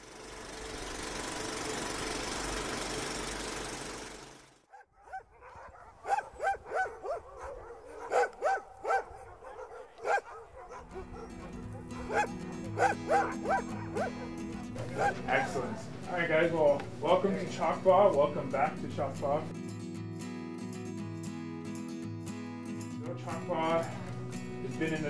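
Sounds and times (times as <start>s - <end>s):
sled dogs barking and yipping: 4.7s - 16.8s
music with low tones: 10.8s - 19.9s.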